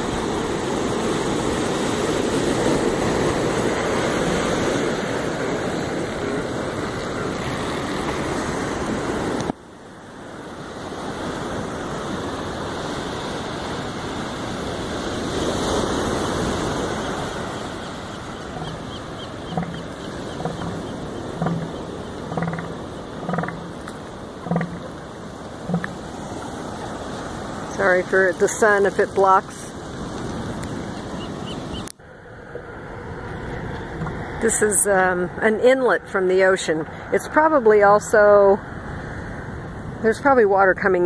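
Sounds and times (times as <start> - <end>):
surf breaking on beach: 0.0 - 31.8
wind on microphone: 10.5 - 31.9
elephant seal pulsed threat call: 16.9 - 26.2.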